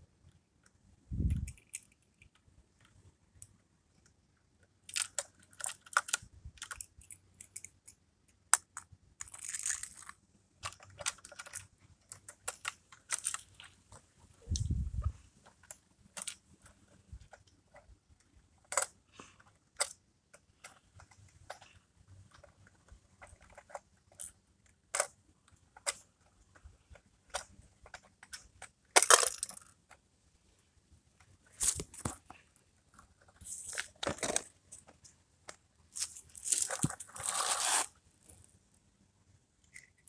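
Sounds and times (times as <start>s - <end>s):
toy truck clicks: 4.6s - 13.6s, 22.3s - 30.0s
toy truck scraping: 35.9s - 38.0s.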